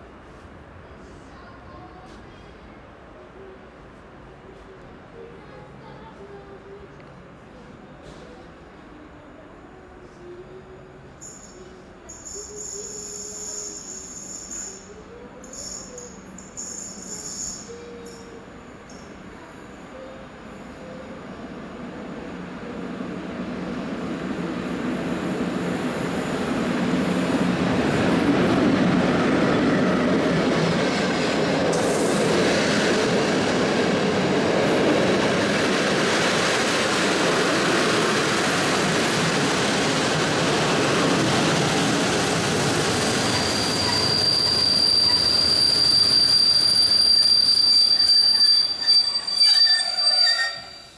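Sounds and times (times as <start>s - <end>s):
train rumbling past: 0.0s - 50.9s
high-pitched brake squeal: 11.2s - 19.1s, 43.3s - 50.9s.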